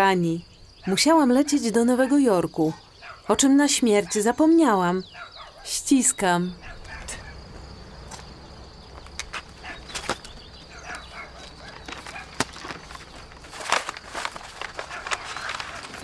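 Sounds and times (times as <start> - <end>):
faint bird chirps: 0.0 - 13.2
low steady hum: 5.9 - 14.8.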